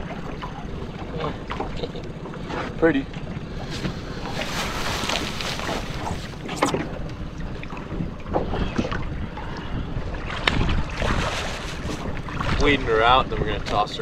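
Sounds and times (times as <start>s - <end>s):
waves slapping boat hull: 0.0s - 14.0s
wind buffeting microphone: 3.3s - 14.0s.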